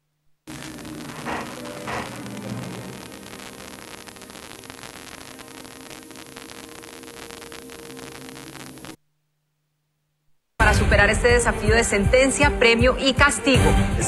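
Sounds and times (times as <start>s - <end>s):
tv static hiss: 0.0s - 11.0s
hum: 0.0s - 11.4s.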